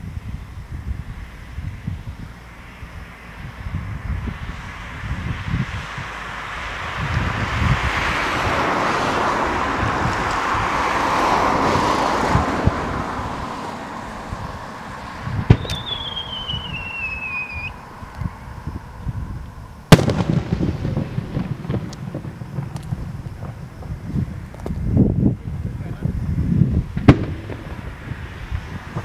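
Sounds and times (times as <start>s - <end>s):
broad rushing noise: 0.0s - 29.0s
firework launch report: 0.0s - 29.0s
firework bang: 15.4s - 17.7s, 19.9s - 24.8s, 26.9s - 29.0s
firework whistle falling in pitch: 15.5s - 17.8s.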